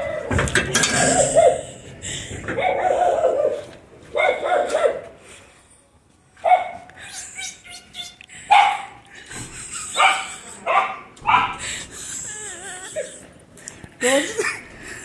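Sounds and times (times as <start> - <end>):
dog barking: 2.6 - 5.1, 6.4 - 6.9, 8.5 - 9.0, 10.0 - 11.6.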